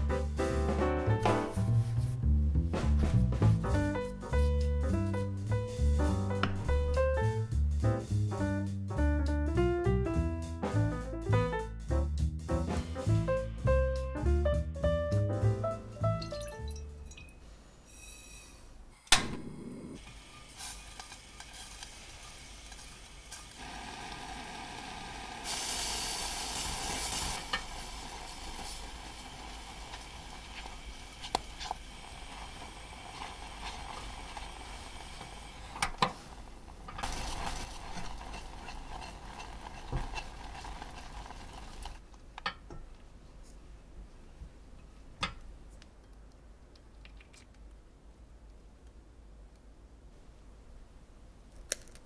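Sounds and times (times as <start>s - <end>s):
milk bubbling and hissing in pan: 19.8s - 42.0s
spatula scraping and tapping pan: 37.3s - 41.5s.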